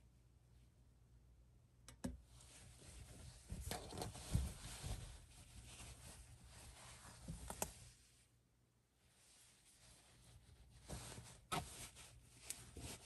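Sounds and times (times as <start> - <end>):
fabric rustling: 2.4 - 8.3, 9.0 - 13.0.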